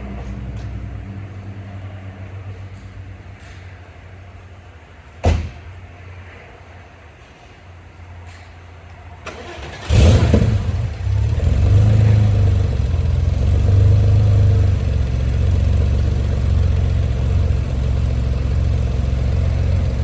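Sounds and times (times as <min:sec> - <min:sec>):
car engine starting and idling: 0:09.1 - 0:20.0.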